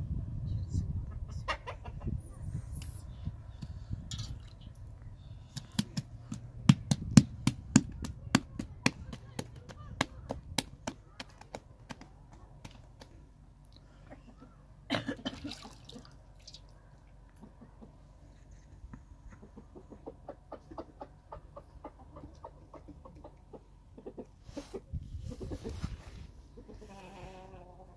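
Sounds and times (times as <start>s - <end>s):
hands slapping dough: 5.5s - 13.1s.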